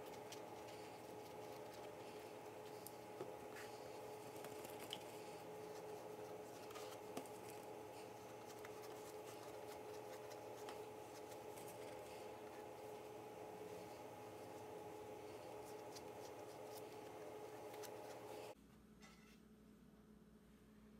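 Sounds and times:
brush dabbing oil: 0.0 - 18.6
steady low hum: 0.0 - 20.9.

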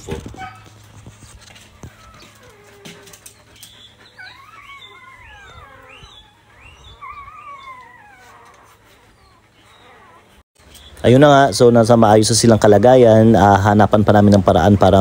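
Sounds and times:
dog whimpering: 1.6 - 10.4, 14.5 - 15.0.

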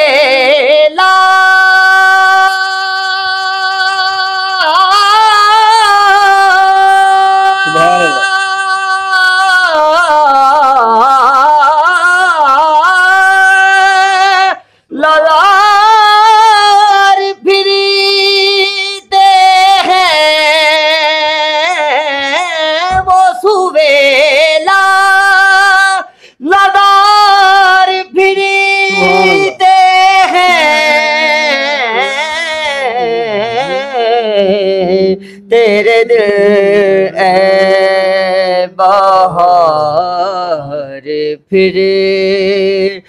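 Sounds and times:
man singing unaccompanied: 0.0 - 43.0.

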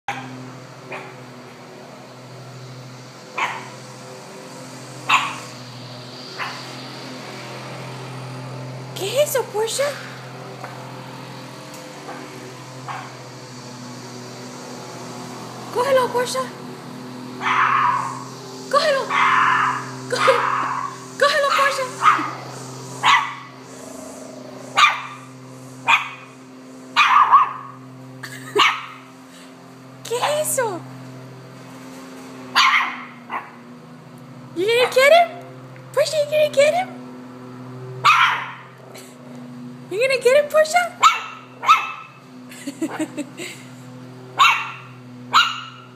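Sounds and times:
lawn mower engine humming: 0.0 - 45.9
puppy barking: 0.1 - 0.3, 0.9 - 1.1, 3.4 - 3.7, 5.1 - 5.5, 6.4 - 6.6, 12.9 - 13.1, 17.4 - 18.2, 19.1 - 23.5, 24.7 - 26.3, 27.0 - 27.7, 28.6 - 29.0, 32.5 - 33.6, 38.0 - 38.7, 41.0 - 42.2, 44.4 - 45.9.

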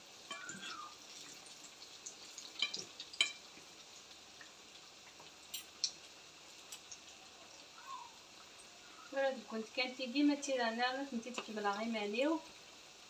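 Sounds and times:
food frying in hot oil: 0.0 - 13.0
metal fork clicking on pan: 2.6 - 3.4.

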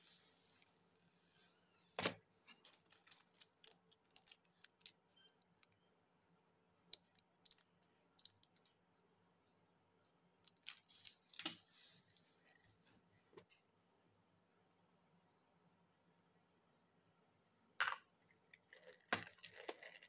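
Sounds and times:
plastic crinkling: 2.6 - 5.0.

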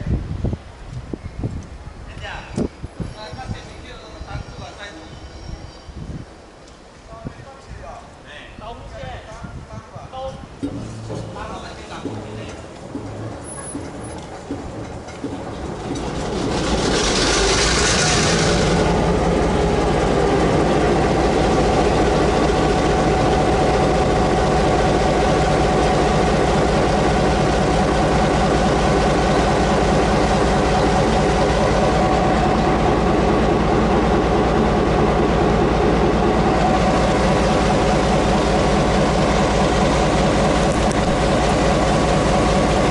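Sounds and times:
diesel locomotive engine starting: 10.4 - 42.9.

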